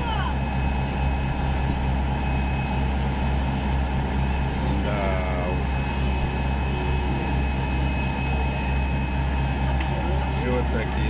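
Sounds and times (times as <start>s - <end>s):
boat diesel engine droning: 0.0s - 11.0s.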